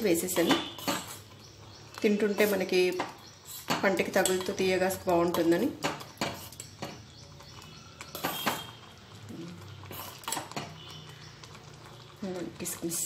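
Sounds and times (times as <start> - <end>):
spoon scraping porridge: 0.3 - 1.4, 2.3 - 13.0
spoon clinking against pot: 4.1 - 4.6, 5.3 - 8.8.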